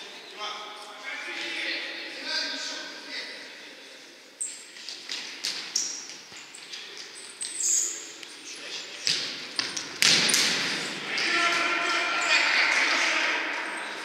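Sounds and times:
players' voices echoing: 0.0s - 4.4s, 6.6s - 14.0s
sneakers squeaking on floor: 4.4s - 11.1s.

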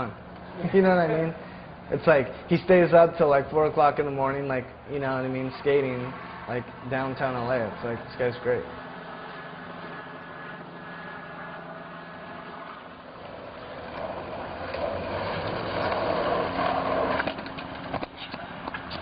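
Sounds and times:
street traffic engines: 4.8s - 19.0s.

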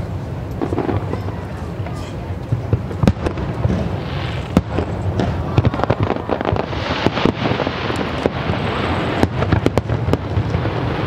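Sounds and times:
fireworks bangs and pops: 0.0s - 11.0s
fireworks crackle: 0.0s - 11.0s.

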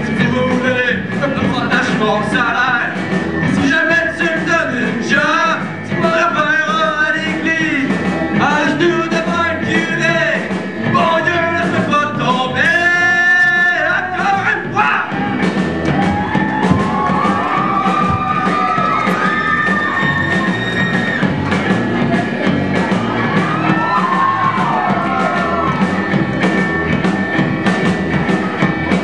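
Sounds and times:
man singing into microphone: 0.0s - 3.0s, 3.6s - 15.1s.

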